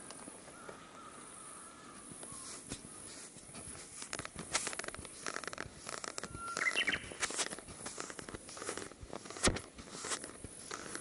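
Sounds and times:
bird singing: 0.0s - 3.2s, 6.0s - 7.4s
clicks and rustles: 2.2s - 11.0s.

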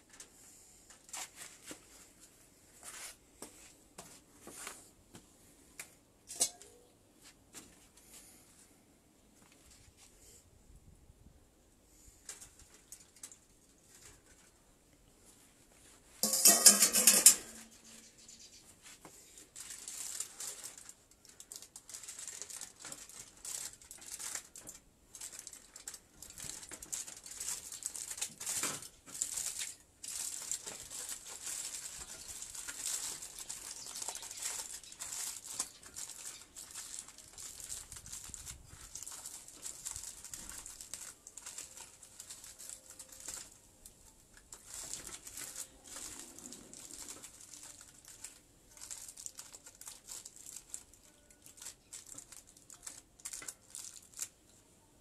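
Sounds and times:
aluminium foil crinkling: 12.0s - 14.7s, 15.8s - 54.5s.

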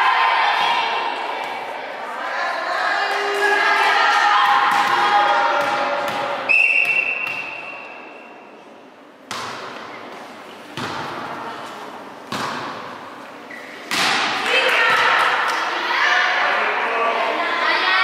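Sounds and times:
referee's whistle: 6.5s - 8.1s.

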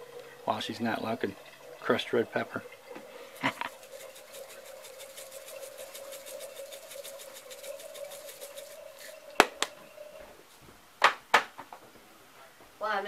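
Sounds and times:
faint steady hum: 0.0s - 13.0s
shaker jar rattling: 3.3s - 9.9s.

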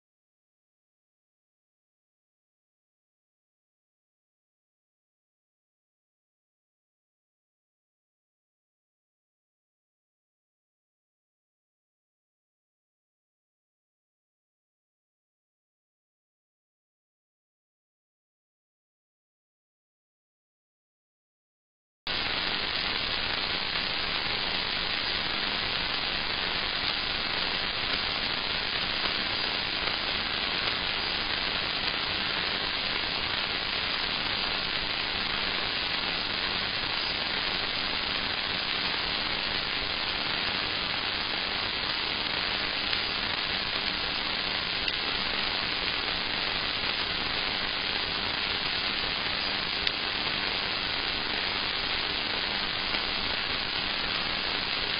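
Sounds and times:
static hiss: 22.1s - 54.9s.

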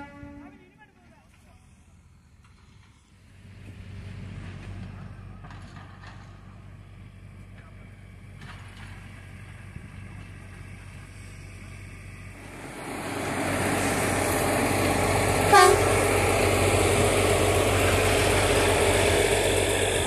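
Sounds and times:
diesel engine running: 1.2s - 20.0s
short horn toot: 15.5s - 16.0s.

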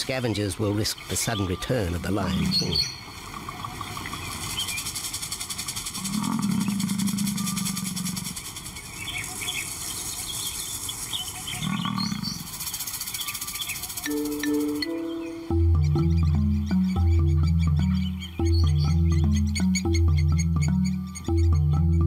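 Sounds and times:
lion roaring: 6.0s - 8.4s, 11.6s - 12.5s
faint bird chirps: 6.0s - 22.0s.

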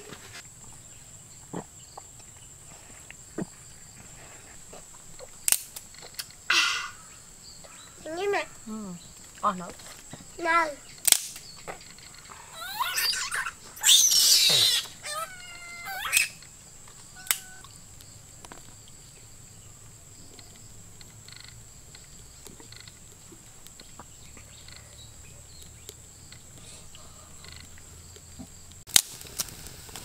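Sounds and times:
faint outdoor background: 0.0s - 30.0s
animal cries: 6.5s - 7.2s, 12.2s - 16.4s, 17.1s - 17.7s
sharp click: 11.0s - 11.5s, 17.2s - 17.5s.

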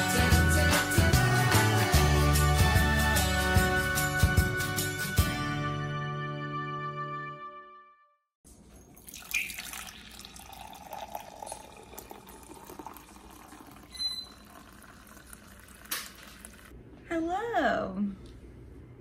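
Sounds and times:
music jingle: 0.0s - 8.0s
coffee pouring into mug: 8.9s - 16.7s.

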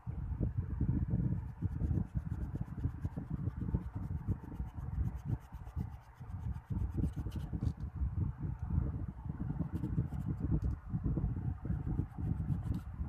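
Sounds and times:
eraser rubbing on paper: 1.7s - 7.7s.

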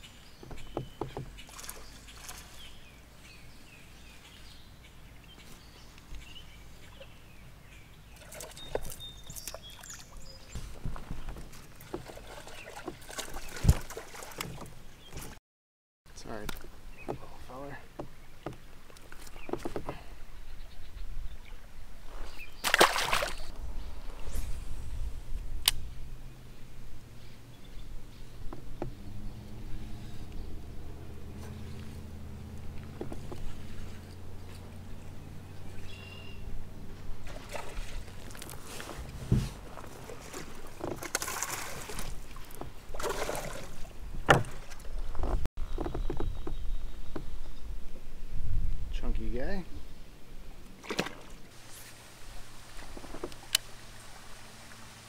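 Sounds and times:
fish splashing into water: 22.6s - 23.5s, 37.2s - 38.6s, 39.9s - 44.9s.

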